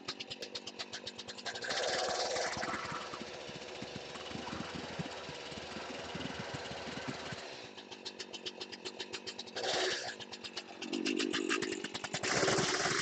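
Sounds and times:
chainsaw engine idling unevenly: 0:00.0 - 0:13.0.

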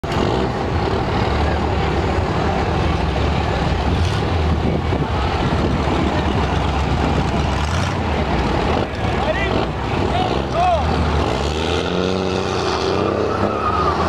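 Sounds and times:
truck engines droning: 0:00.0 - 0:14.0.

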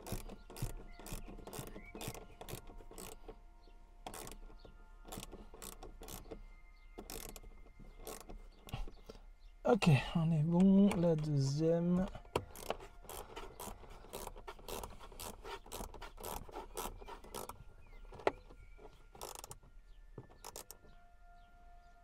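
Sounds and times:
wrench rasping clicks: 0:00.0 - 0:03.4, 0:04.0 - 0:04.5, 0:05.1 - 0:06.4, 0:07.0 - 0:09.1, 0:10.6 - 0:19.6, 0:20.2 - 0:20.8.

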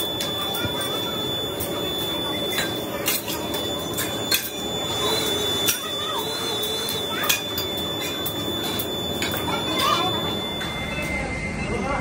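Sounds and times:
thin high whine: 0:00.0 - 0:12.0.

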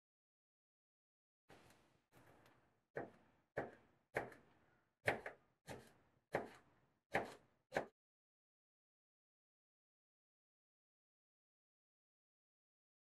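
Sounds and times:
knife striking cutting board: 0:05.1 - 0:07.9.

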